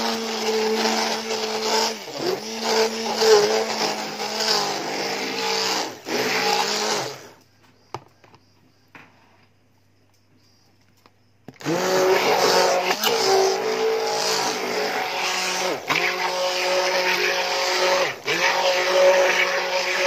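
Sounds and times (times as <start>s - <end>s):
electric mixer motor whirring: 0.0s - 7.4s, 11.6s - 20.0s.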